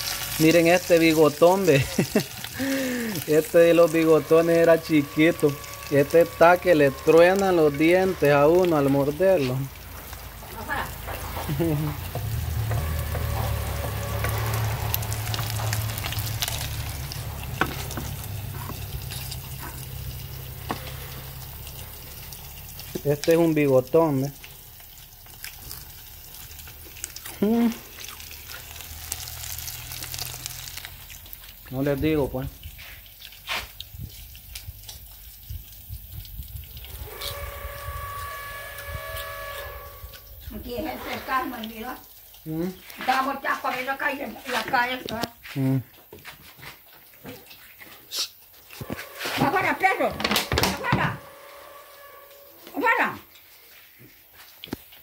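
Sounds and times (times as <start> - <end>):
fish sizzling in hot oil: 0.0 - 55.0
steady horn-like tone: 3.3 - 9.7, 12.2 - 22.0, 36.9 - 41.5, 48.7 - 53.2
low rumble: 3.4 - 22.8.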